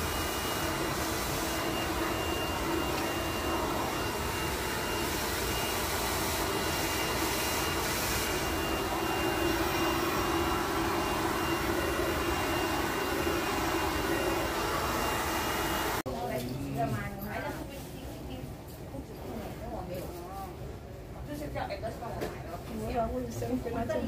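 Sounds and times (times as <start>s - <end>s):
hair dryer blowing: 0.0s - 16.1s.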